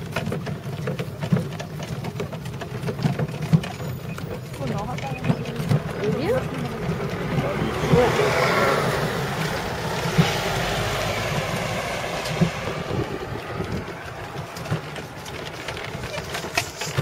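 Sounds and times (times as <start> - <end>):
vehicle passing on road: 0.0 - 17.0
wind buffeting microphone: 4.2 - 17.0.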